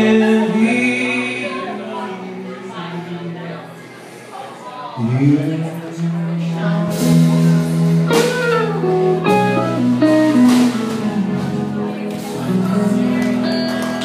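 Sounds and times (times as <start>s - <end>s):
sliding guitar notes: 5.0s - 14.0s
live rock band playing: 5.9s - 14.0s.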